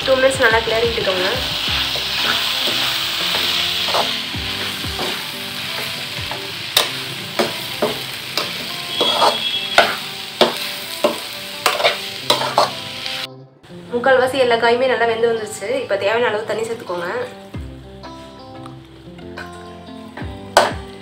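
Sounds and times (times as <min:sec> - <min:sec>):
vegetables sizzling in oil: 0:00.0 - 0:13.9
metal spatula scraping pan: 0:07.8 - 0:12.8.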